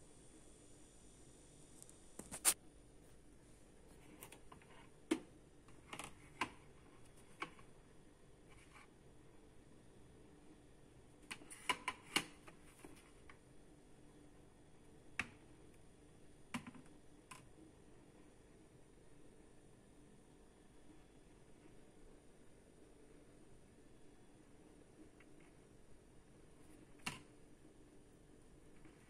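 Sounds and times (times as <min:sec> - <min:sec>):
faint handling clicks and taps: 0:03.9 - 0:07.8.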